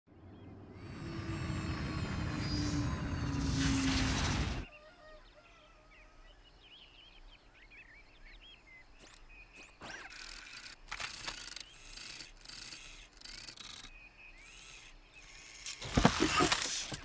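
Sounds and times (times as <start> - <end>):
faint bird chirps: 4.6 - 16.3
robot whirring and clicking: 9.0 - 17.0.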